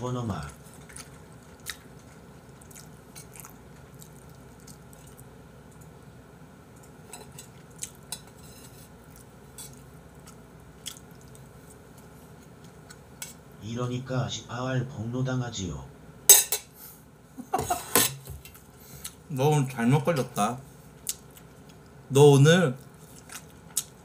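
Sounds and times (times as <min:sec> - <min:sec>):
soft chewing: 0:00.3 - 0:06.0, 0:06.7 - 0:13.5, 0:18.4 - 0:19.3, 0:20.7 - 0:24.0.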